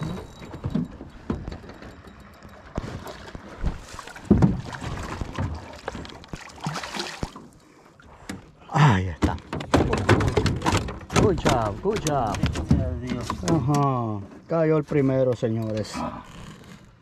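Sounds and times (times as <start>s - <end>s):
water splashing on hull: 0.0s - 8.5s
knocks in aluminium boat: 0.3s - 6.5s, 9.2s - 13.8s.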